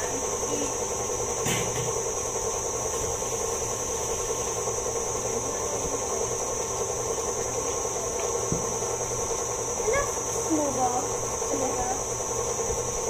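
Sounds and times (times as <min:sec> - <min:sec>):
stand mixer motor humming: 0:00.0 - 0:13.0.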